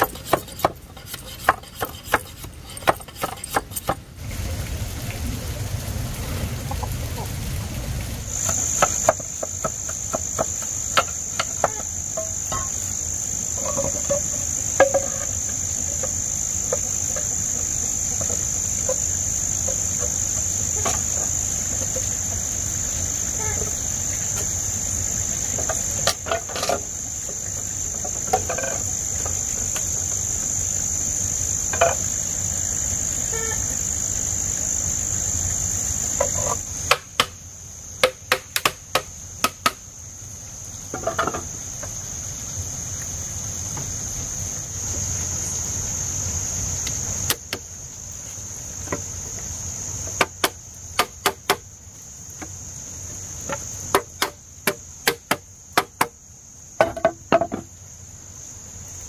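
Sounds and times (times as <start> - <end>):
block hammering bamboo: 0.0 - 4.0, 8.4 - 12.9, 13.6 - 22.1, 36.2 - 37.4, 38.0 - 39.8, 50.0 - 51.7, 53.5 - 56.2
hollow knocks of bamboo poles: 0.0 - 4.0, 8.3 - 22.6, 25.4 - 30.0, 31.7 - 32.2, 36.1 - 37.4, 38.0 - 39.9, 40.9 - 42.0, 47.2 - 47.7, 48.8 - 51.7, 53.4 - 56.2, 56.8 - 57.7
crickets trilling: 0.0 - 59.0.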